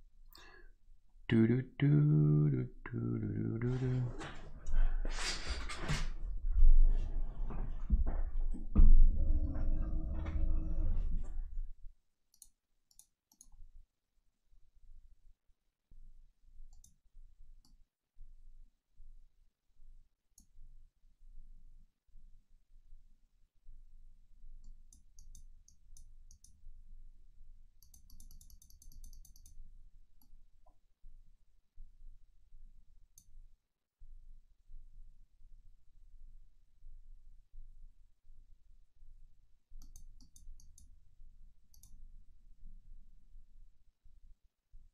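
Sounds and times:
low room hum: 0:06.2 - 0:11.9
low rumbling noise: 0:08.8 - 0:11.7
computer mouse clicks: 0:12.3 - 0:13.6, 0:16.7 - 0:17.0, 0:24.6 - 0:26.6, 0:27.8 - 0:29.6, 0:39.8 - 0:40.9, 0:41.7 - 0:42.0.

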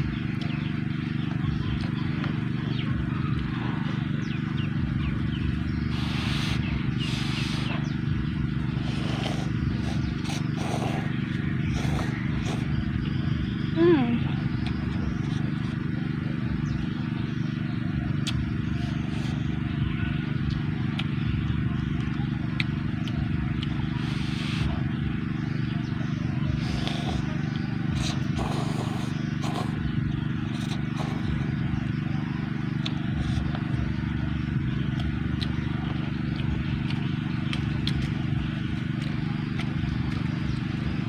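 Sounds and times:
steady low hum: 0:00.0 - 0:41.0
noodle slurping: 0:05.9 - 0:07.9, 0:08.8 - 0:12.8, 0:26.6 - 0:29.8, 0:30.5 - 0:31.5.

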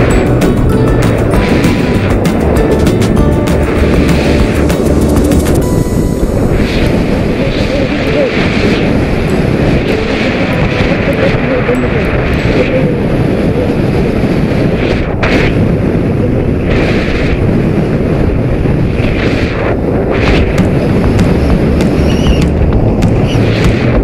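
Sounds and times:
motorcycle running: 0:00.0 - 0:07.5, 0:20.4 - 0:24.0
wind buffeting microphone: 0:00.0 - 0:24.0.

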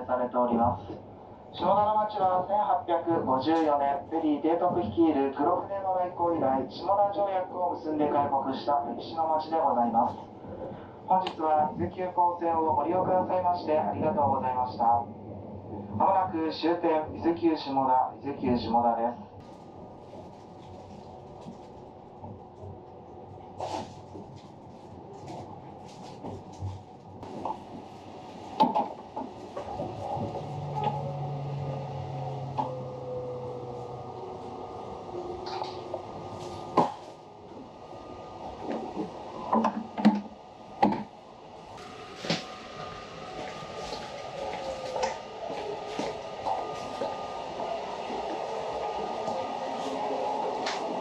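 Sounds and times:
train humming: 0:19.4 - 0:51.0
footsteps on tiled floor: 0:43.4 - 0:47.2.

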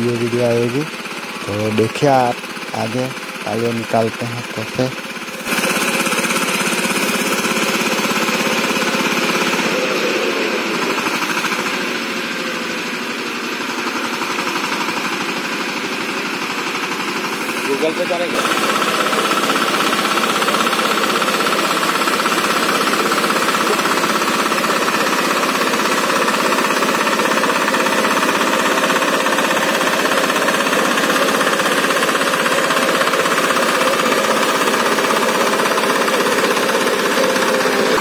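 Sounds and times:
tiller diesel engine running: 0:00.0 - 0:38.0.

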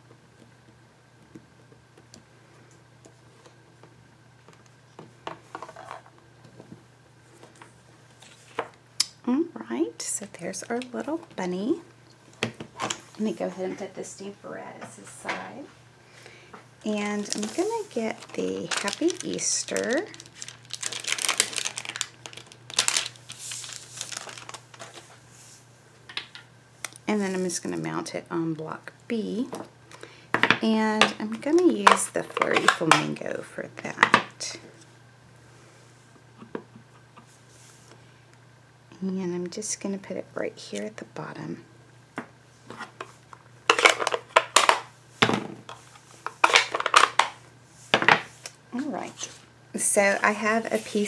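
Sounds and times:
plastic sheet crinkling: 0:17.0 - 0:25.2.

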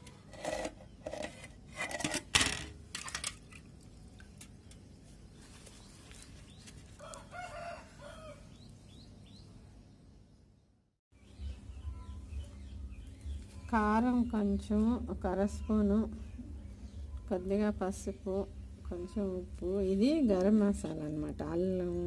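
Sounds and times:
rooster crowing: 0:07.0 - 0:08.5.

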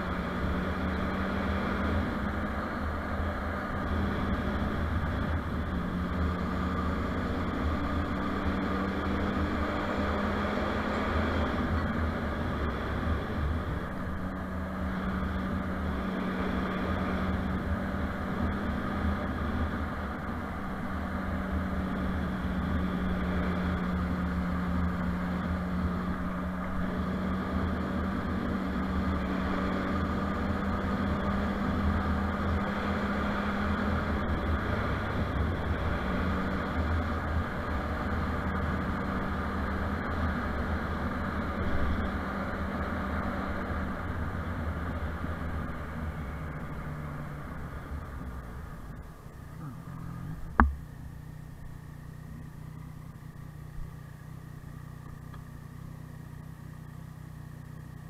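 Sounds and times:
motorcycle engine cruising: 0:00.0 - 0:58.0
wind and road noise: 0:00.0 - 0:58.0.

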